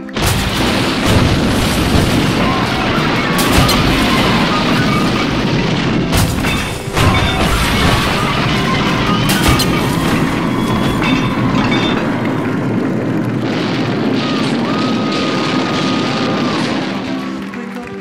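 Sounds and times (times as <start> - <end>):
house collapsing rumble: 0.0 - 18.0
music: 0.1 - 12.1, 15.5 - 18.0
whistle-like tone: 7.0 - 12.5.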